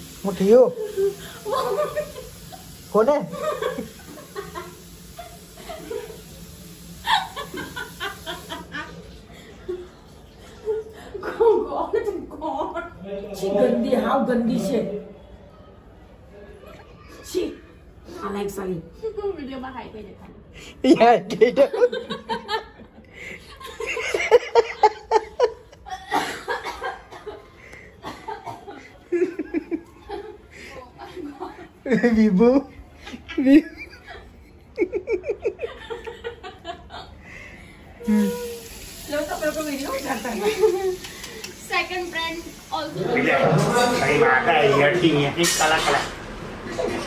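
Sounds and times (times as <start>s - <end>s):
person laughing: 7.0s - 8.7s.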